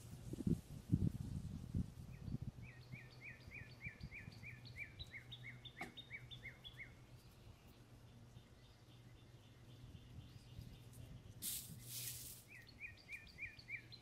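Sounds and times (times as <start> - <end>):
bird whistling: 2.6 - 7.0, 12.5 - 14.0.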